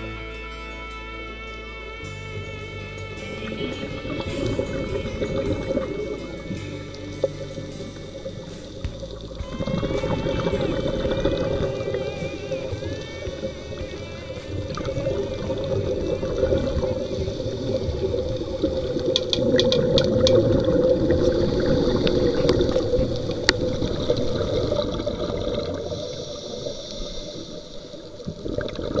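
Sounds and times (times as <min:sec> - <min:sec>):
regulator bubbles underwater: 0:02.4 - 0:29.0
sharp clicks: 0:19.0 - 0:20.5.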